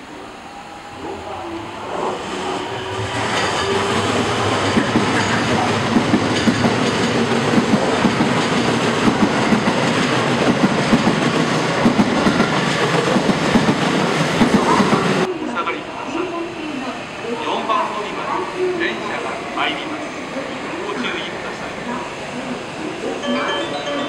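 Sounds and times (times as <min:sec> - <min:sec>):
train rolling rumble: 0:00.9 - 0:15.3
train wheels clacking over rail joints: 0:04.6 - 0:15.3.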